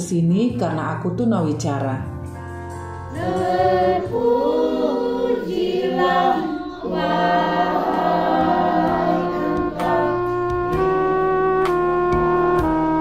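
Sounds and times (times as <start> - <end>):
group singing unaccompanied: 3.1 - 10.9.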